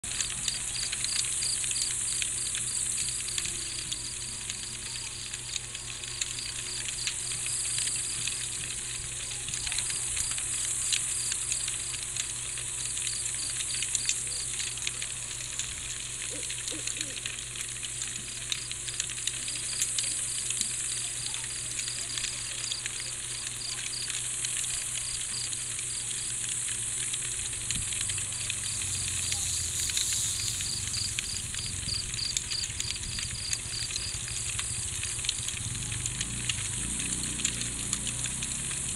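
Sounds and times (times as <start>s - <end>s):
crickets chirping: 0.2s - 8.6s, 9.8s - 14.6s, 18.5s - 36.4s
fine crackling: 19.8s - 37.0s
high insect buzz: 28.8s - 32.6s.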